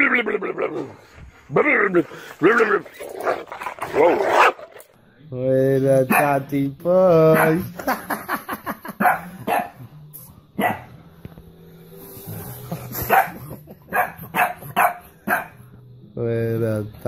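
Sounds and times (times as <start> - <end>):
small dog barking: 6.1 - 6.3, 9.0 - 9.8, 10.6 - 10.9, 13.1 - 15.6.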